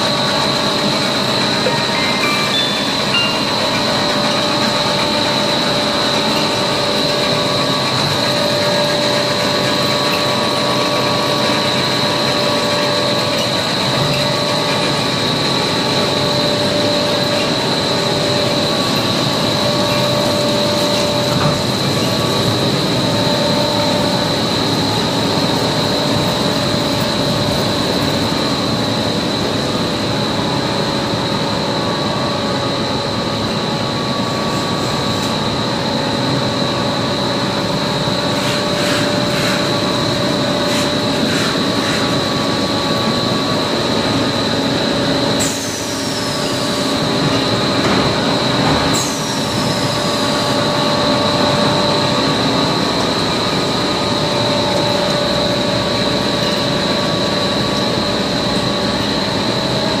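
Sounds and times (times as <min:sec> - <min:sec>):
stretch film machine running: 0:00.0 - 0:31.5
high steady machine whine: 0:00.0 - 1:00.0.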